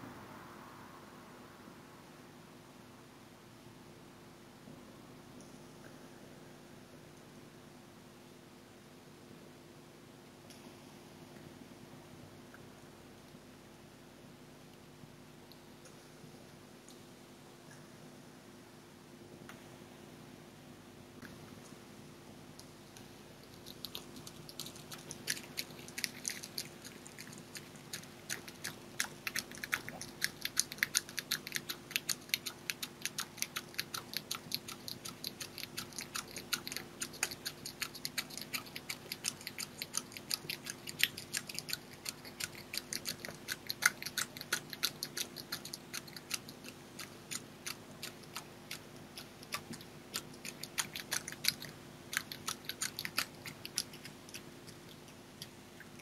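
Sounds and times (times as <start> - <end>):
faint low hum: 0.0 - 56.0
fox chewing and crunching food: 23.0 - 56.0.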